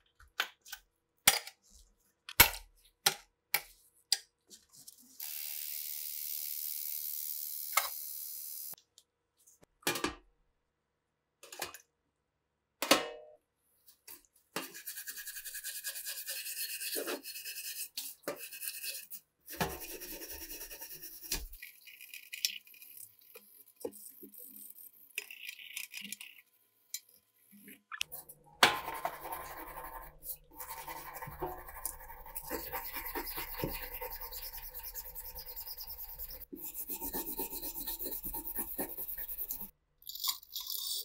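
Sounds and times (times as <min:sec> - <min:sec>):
stiff brush scrubbing metal: 0:28.1 - 0:39.7.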